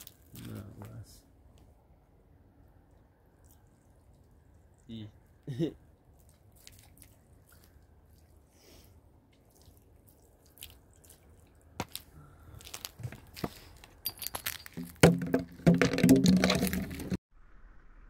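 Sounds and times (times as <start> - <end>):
footsteps crunching on gravel and glass: 11.8 - 17.2.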